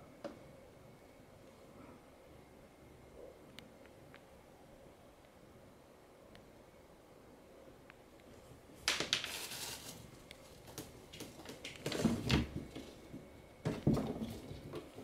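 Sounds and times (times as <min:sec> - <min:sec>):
rustling in a plastic bin: 0:09.0 - 0:15.0
plastic knocks and bumps: 0:10.6 - 0:15.0.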